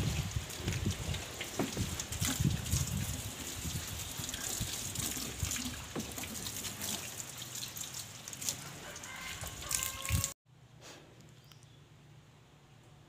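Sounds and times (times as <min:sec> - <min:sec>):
hose water spraying on metal: 0:00.0 - 0:10.3.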